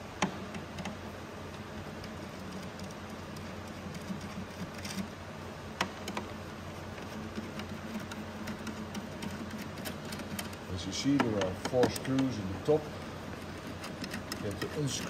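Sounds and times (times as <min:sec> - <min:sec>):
steady low hum: 0:00.0 - 0:15.0
hand tools and screws clicking: 0:07.0 - 0:12.4, 0:13.4 - 0:15.0.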